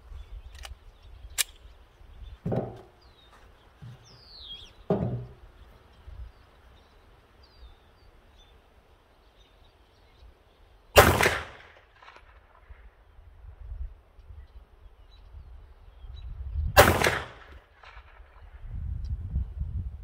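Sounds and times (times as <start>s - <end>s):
faint gunshot echo: 11.0s - 12.4s, 16.8s - 18.2s
pistol shot: 11.0s - 12.4s, 16.8s - 18.1s.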